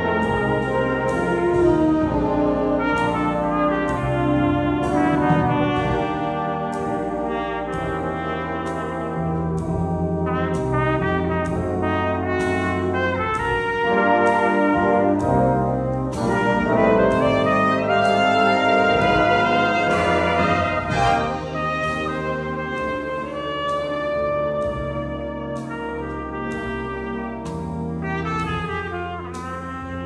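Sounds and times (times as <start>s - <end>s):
band accompaniment: 0.0s - 30.0s
trumpet solo: 0.0s - 30.0s.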